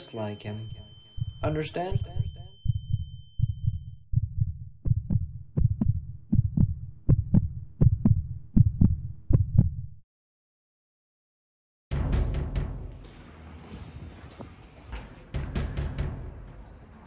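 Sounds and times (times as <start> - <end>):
faint steady tone: 0.0 - 4.0
heartbeat thumps: 0.7 - 10.0.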